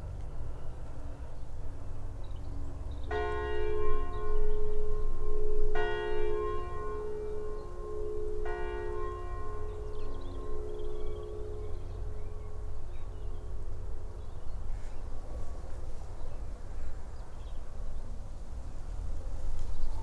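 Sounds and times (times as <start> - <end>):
church bell tolling: 2.9 - 14.5.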